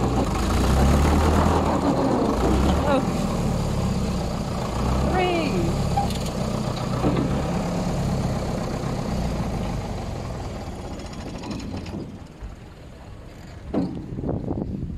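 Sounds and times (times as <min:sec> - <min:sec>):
vehicle engine humming: 0:00.0 - 0:14.9.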